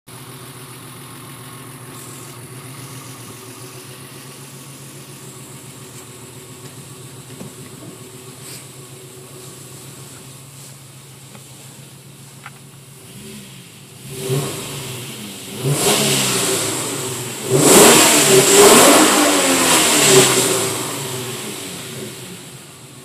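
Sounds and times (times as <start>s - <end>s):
car engine idling: 0.1s - 23.0s.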